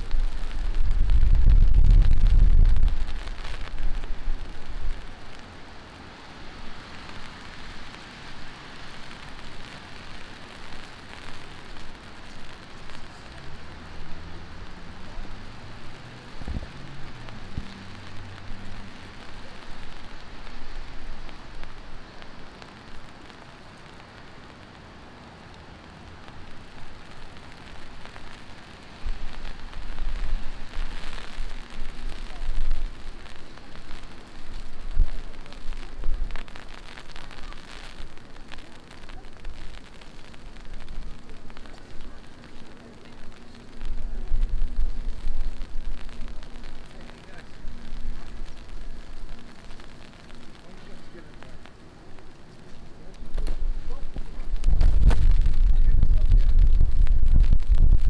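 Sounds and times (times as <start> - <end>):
deep rumble: 0.0 - 5.4, 29.1 - 52.3, 53.2 - 58.0
heavy rain falling: 0.0 - 58.0.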